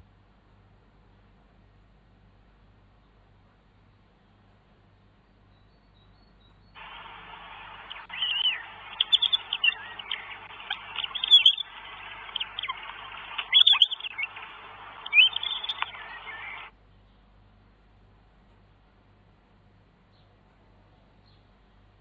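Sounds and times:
steady hiss: 6.7 - 16.8
hawk calling: 6.8 - 16.7.

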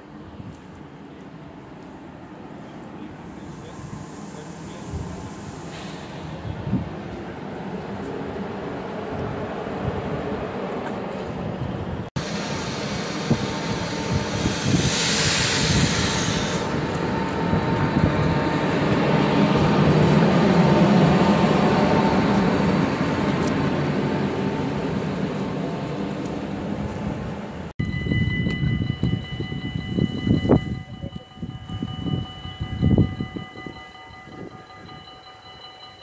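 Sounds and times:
electric locomotive passing: 0.0 - 36.0
loud hiss: 3.3 - 6.6, 12.2 - 17.0.

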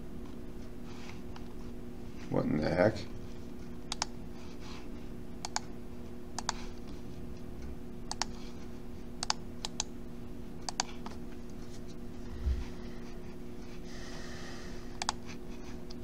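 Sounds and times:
low electrical hum: 0.0 - 16.0
computer mouse clicks: 3.9 - 4.1, 5.4 - 5.7, 6.4 - 6.6, 8.1 - 8.4, 9.2 - 9.9, 10.6 - 11.2, 14.9 - 15.2.

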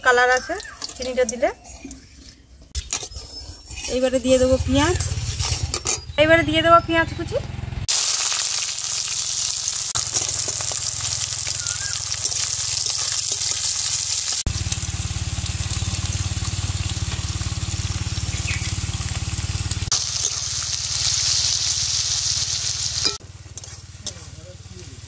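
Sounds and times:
onions sizzling in hot oil: 7.9 - 25.0
steel ladle stirring in metal pan: 23.0 - 23.9.

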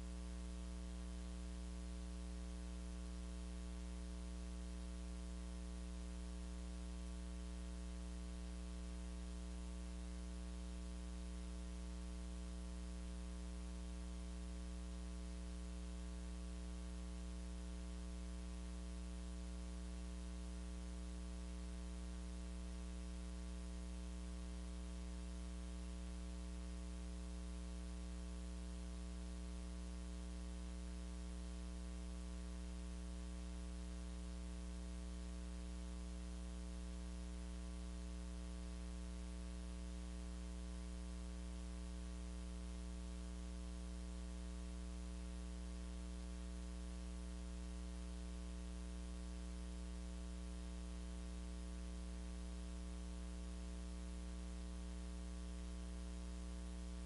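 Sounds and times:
electrical mains hum: 0.0 - 57.0.

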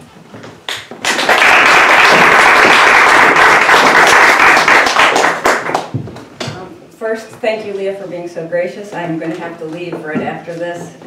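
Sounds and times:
audience applauding: 0.7 - 6.0.

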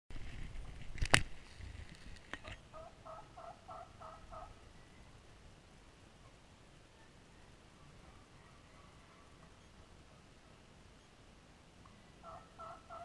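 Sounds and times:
turkeys yelping: 2.4 - 5.1, 12.2 - 13.0.

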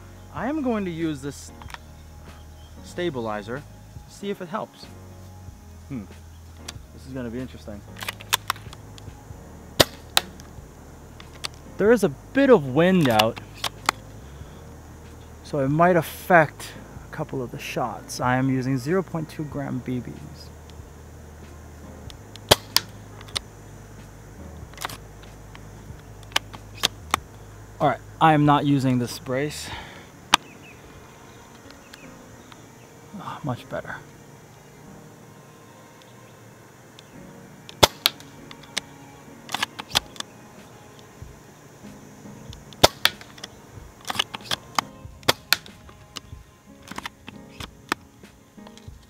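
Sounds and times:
rifle bolt clicking: 8.0 - 8.8, 9.8 - 10.5, 22.1 - 23.4, 37.7 - 38.9, 39.5 - 40.3, 42.7 - 48.0
airsoft rifle shot snap: 9.8 - 10.5, 22.4 - 23.4, 37.7 - 38.3, 42.7 - 46.0
rifle bolt clicks and clacks: 46.8 - 48.0.

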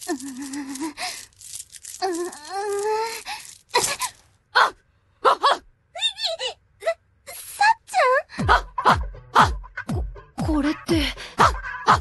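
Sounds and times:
woman groaning and moaning: 0.0 - 1.2, 1.9 - 5.6, 6.8 - 9.6, 10.4 - 12.0.

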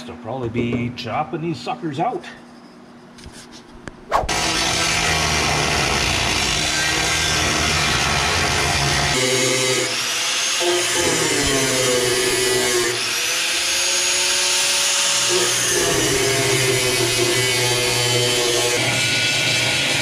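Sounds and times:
power tool cutting steel: 4.3 - 20.0.

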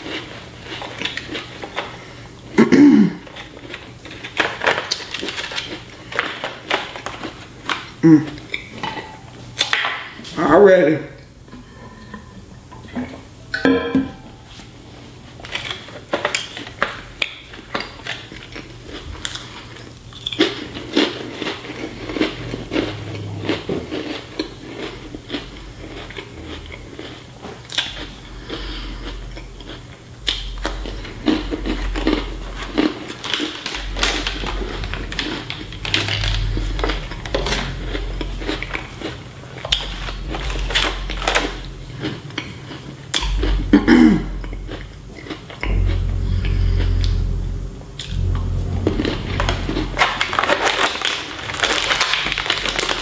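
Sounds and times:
crunchy chewing: 0.0 - 2.4, 15.4 - 53.0.

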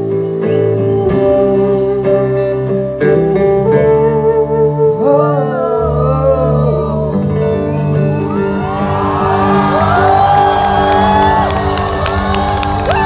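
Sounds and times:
live band with acoustic guitar: 0.0 - 13.0
person singing: 0.0 - 13.0
crowd shouting and whooping: 7.6 - 13.0.

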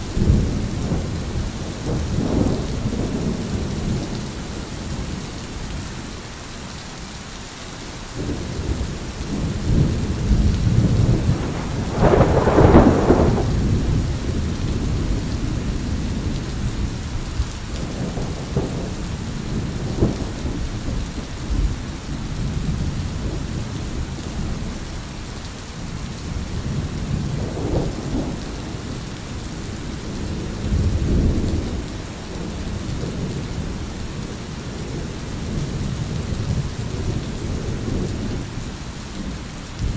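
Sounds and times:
rain hissing: 0.0 - 39.9
thunder rolling: 9.3 - 16.4.

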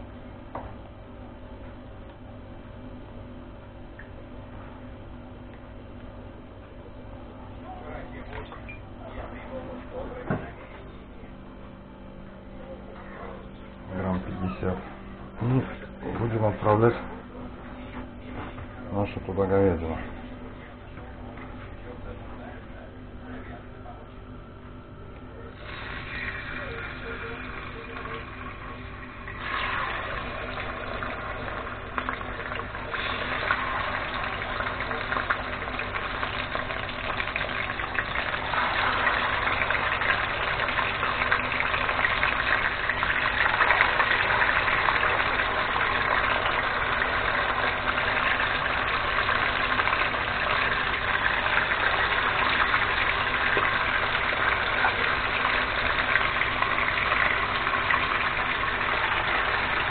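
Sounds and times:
meat sizzling in hot oil: 25.6 - 59.9.

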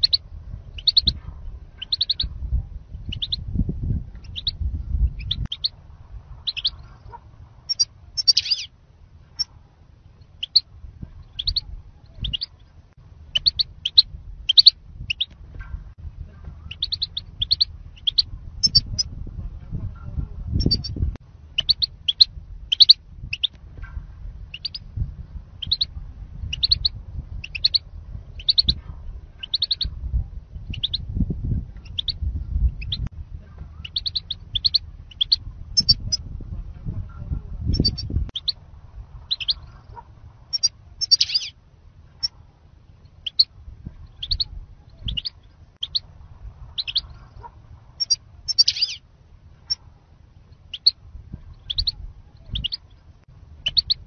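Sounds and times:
goldfinch chirps: 0.0 - 0.2, 0.8 - 1.2, 1.8 - 2.3, 3.1 - 3.4, 4.2 - 5.7, 6.4 - 6.9, 7.7 - 8.7, 10.4 - 12.6, 13.3 - 15.3, 16.7 - 19.1, 21.6 - 23.6, 24.5 - 24.9, 25.6 - 27.8, 28.4 - 28.8, 29.4 - 29.9, 30.6 - 31.0, 33.8 - 36.2, 39.3 - 41.6, 43.1 - 43.5, 44.1 - 46.1, 46.7 - 49.0, 50.5 - 51.0, 51.6 - 54.0
low rumble: 0.0 - 54.0.

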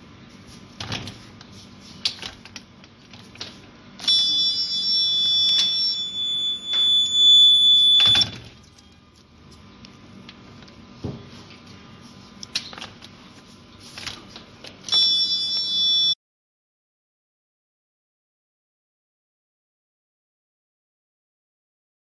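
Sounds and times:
high-pitched buzzer tone: 4.0 - 8.3, 14.9 - 16.2.

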